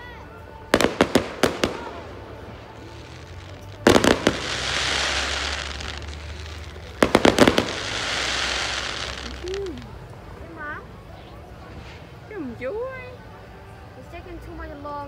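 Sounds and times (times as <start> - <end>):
fireworks crackling hiss: 0.3 - 15.0
fireworks bangs: 0.7 - 10.0.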